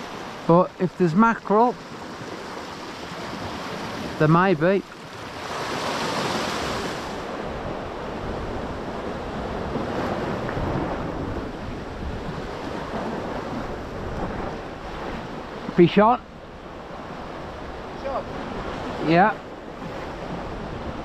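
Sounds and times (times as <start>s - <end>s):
waves washing against rocks: 0.0s - 15.9s
wind on microphone: 5.0s - 21.0s.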